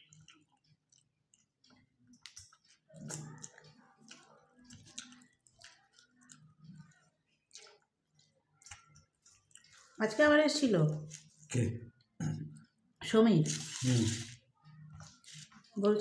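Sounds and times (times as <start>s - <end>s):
chewing and mouth clicks: 0.0s - 10.0s, 11.0s - 11.6s.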